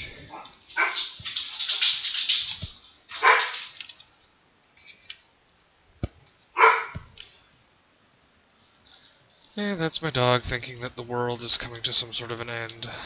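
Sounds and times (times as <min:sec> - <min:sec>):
dog barking: 0:00.3 - 0:01.2, 0:03.2 - 0:03.6, 0:06.6 - 0:07.1.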